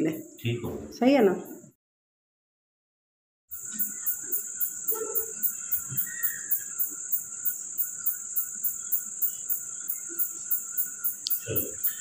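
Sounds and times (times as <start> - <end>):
crickets chirping: 3.5 - 12.0.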